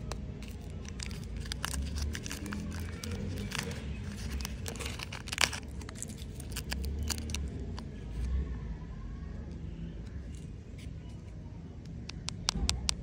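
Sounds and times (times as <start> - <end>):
candy wrapper crinkling: 0.0 - 8.3.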